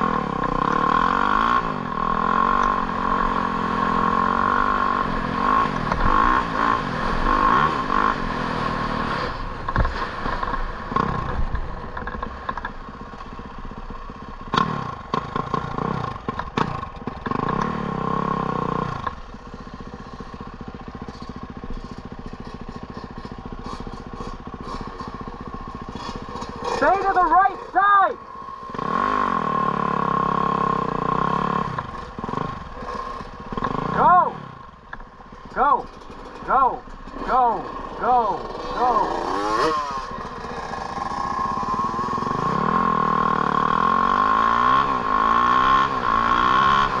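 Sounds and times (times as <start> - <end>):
engine revving: 0.0 - 12.6, 14.4 - 19.2, 21.1 - 47.0.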